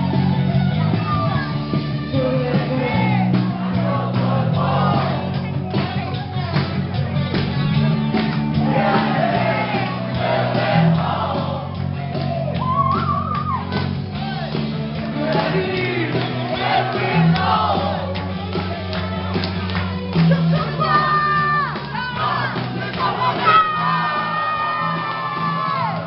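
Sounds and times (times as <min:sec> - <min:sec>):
live rock band playing: 0:00.0 - 0:21.8
person singing: 0:02.1 - 0:06.1.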